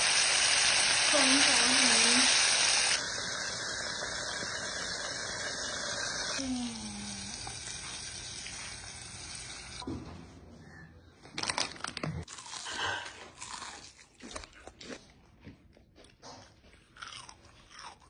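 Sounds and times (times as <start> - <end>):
oil sizzling in deep fryer: 0.0 - 9.8
crunching bites and chewing: 12.3 - 18.0.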